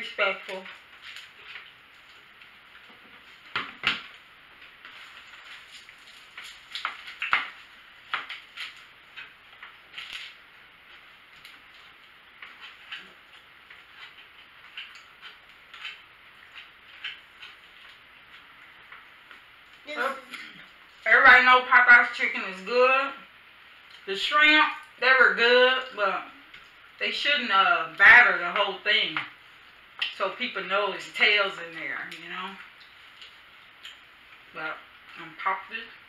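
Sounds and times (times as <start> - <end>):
crunching and chewing: 0.5 - 21.1, 32.1 - 35.2.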